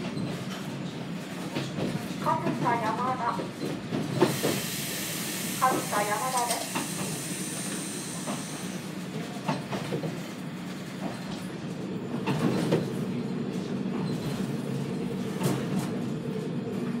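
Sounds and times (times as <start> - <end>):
railcar engine drone: 0.0 - 17.0.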